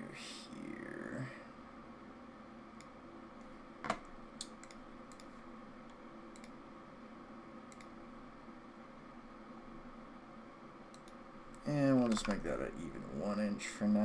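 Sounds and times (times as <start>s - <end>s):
faint steady hum: 0.0s - 14.0s
computer mouse clicking: 3.9s - 6.6s, 7.7s - 8.0s, 10.9s - 12.5s.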